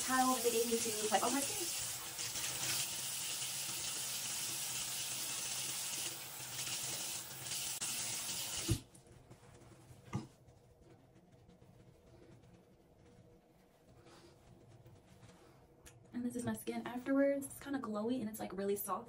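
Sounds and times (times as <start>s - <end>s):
water running from a tap: 0.0s - 8.8s.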